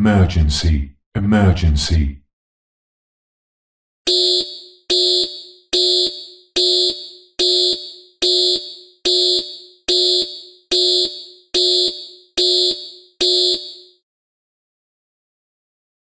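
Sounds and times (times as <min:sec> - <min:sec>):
electronic alarm beeping: 0:04.1 - 0:14.0.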